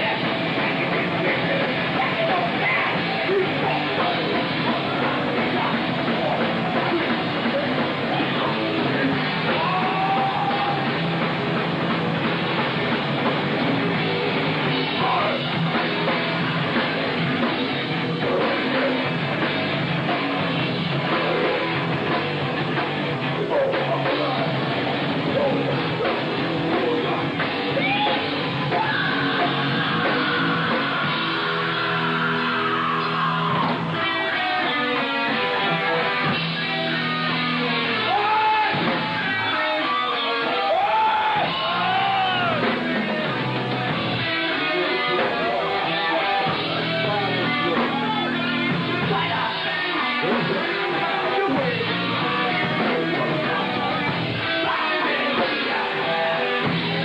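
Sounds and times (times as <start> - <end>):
distorted electric guitars: 0.0 - 57.0
drum kit: 0.0 - 57.0.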